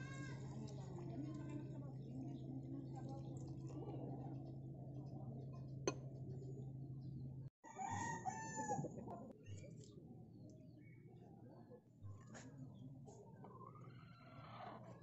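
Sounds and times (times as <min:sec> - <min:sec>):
rooster crowing: 0:07.6 - 0:08.9.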